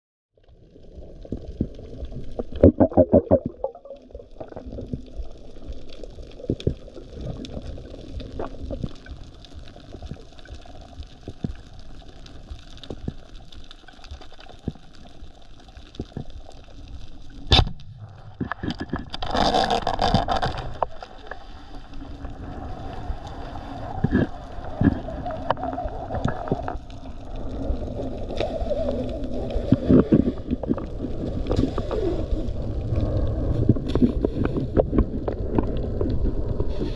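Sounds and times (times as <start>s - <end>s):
underwater water noise: 0.4s - 36.9s
speargun firing crack: 17.5s - 17.9s.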